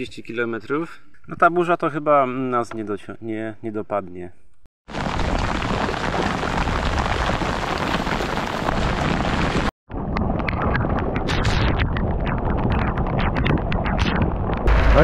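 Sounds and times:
heavy rain pouring: 0:04.9 - 0:09.7
raindrop hits: 0:04.9 - 0:15.0.

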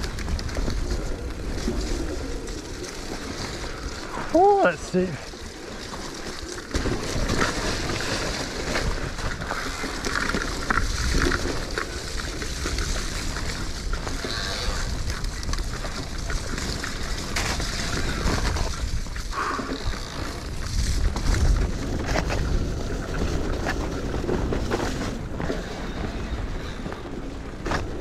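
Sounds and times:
wind buffeting microphone: 0:10.6 - 0:28.0.

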